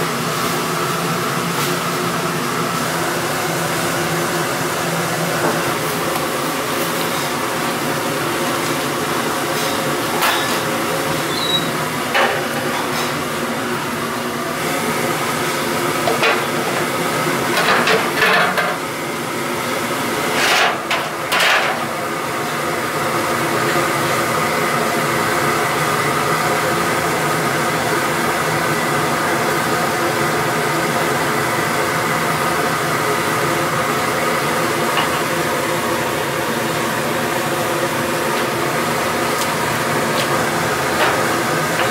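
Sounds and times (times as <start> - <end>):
gas burners and fans hissing: 0.0 - 41.9.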